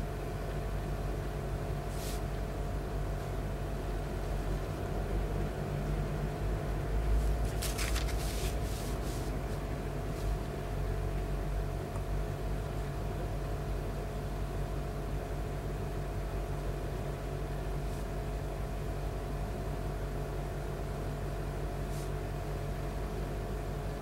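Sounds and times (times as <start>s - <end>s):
low appliance hum: 0.0s - 24.0s
soft rustle: 1.9s - 2.3s, 7.2s - 10.4s, 21.8s - 22.2s.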